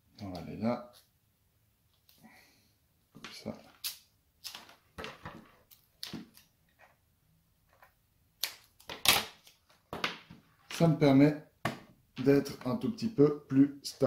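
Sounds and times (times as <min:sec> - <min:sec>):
adhesive tape ripping off roll: 0:03.8 - 0:04.6, 0:08.4 - 0:09.6.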